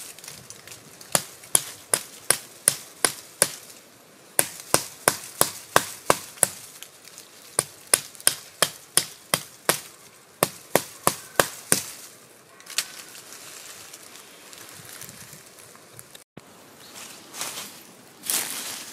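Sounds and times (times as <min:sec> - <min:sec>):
knife chopping wood: 0:04.4 - 0:06.6, 0:07.6 - 0:12.0.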